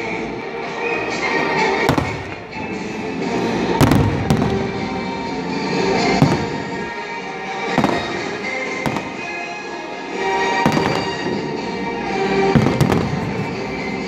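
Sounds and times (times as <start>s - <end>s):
music playing: 0.0s - 14.0s
firework booms: 1.9s - 2.7s, 3.8s - 5.0s, 6.0s - 6.8s, 7.7s - 9.4s, 10.6s - 11.4s, 12.5s - 14.0s.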